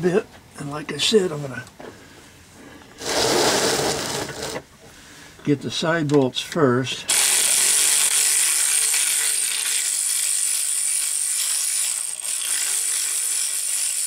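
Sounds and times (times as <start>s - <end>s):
electric ratchet running: 3.0s - 4.6s, 7.1s - 14.0s.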